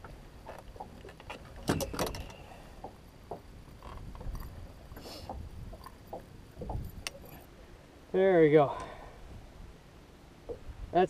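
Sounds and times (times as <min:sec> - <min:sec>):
knocks clicks and rattles on boat: 0:00.0 - 0:07.5
wind and water rumble: 0:00.0 - 0:11.0.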